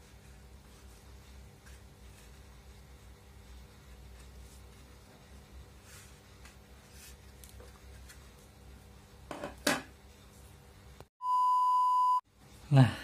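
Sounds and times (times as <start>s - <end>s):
steady electronic beep: 11.2s - 12.2s.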